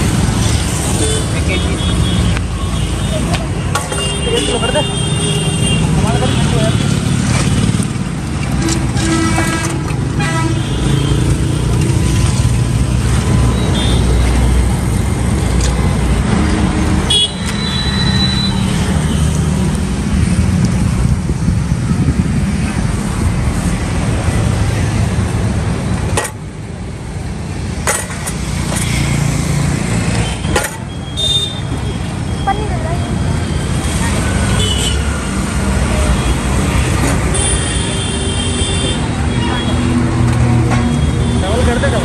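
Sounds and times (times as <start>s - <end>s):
road traffic engines: 0.0s - 42.0s
vehicle horns honking: 8.6s - 11.3s, 17.1s - 18.7s, 31.1s - 32.0s.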